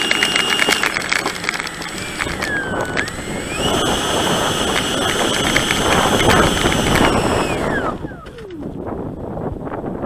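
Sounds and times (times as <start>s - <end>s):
model plane motor whining: 0.0s - 8.8s
rushing air: 1.7s - 9.7s.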